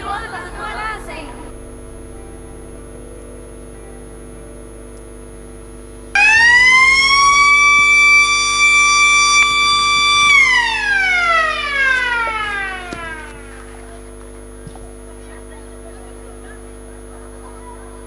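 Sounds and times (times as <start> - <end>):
siren wailing: 6.2 - 13.8.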